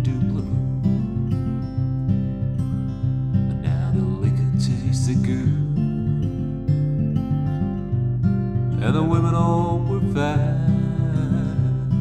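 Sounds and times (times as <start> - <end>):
man singing: 0.0 - 1.4, 3.5 - 5.9, 8.8 - 12.0
acoustic guitar playing: 0.0 - 12.0.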